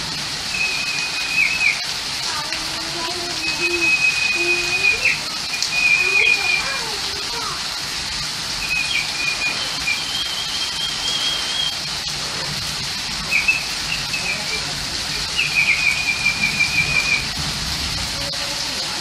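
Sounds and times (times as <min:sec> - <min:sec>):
steady rain hiss: 0:00.0 - 0:19.0
high wavering whistle-like trills: 0:00.5 - 0:01.8, 0:03.4 - 0:06.8, 0:08.6 - 0:11.9, 0:13.3 - 0:14.6, 0:15.3 - 0:17.4.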